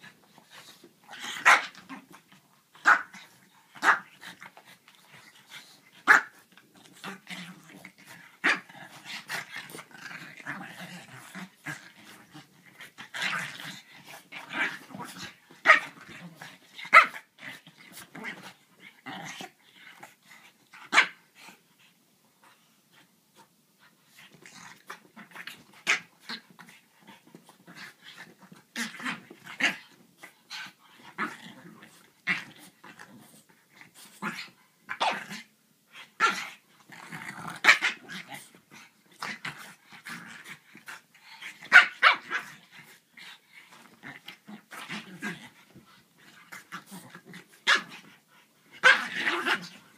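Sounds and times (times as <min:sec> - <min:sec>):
dogs growling: 0:36.2 - 0:48.2.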